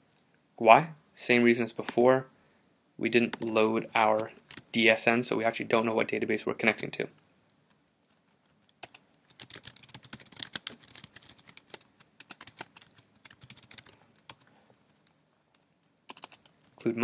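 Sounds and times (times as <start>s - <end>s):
computer keyboard typing: 4.2s - 4.7s, 8.5s - 14.5s, 16.0s - 16.6s.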